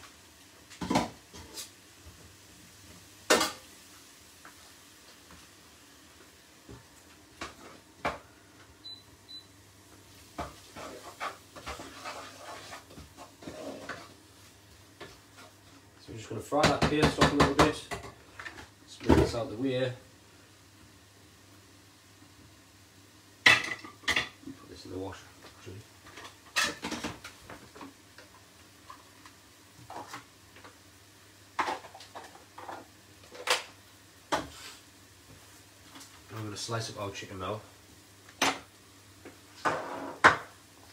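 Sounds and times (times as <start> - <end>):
wooden spoon scraping a pot: 10.4 - 14.2
kitchenware clicks and knocks: 16.6 - 19.4.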